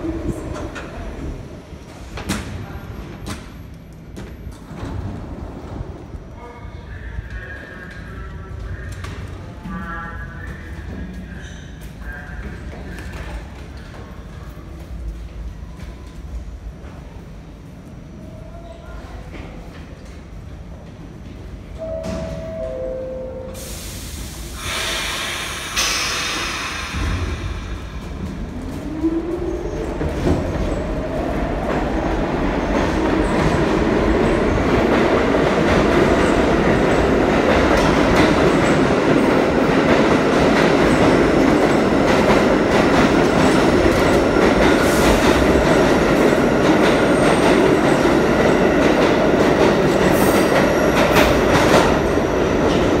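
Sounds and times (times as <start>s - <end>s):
train wheels rumbling on rails: 24.1s - 53.0s.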